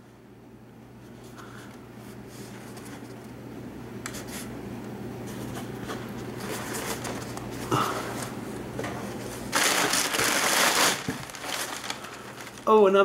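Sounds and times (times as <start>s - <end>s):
packing paper rustling and crinkling: 5.3s - 8.4s, 9.2s - 13.0s.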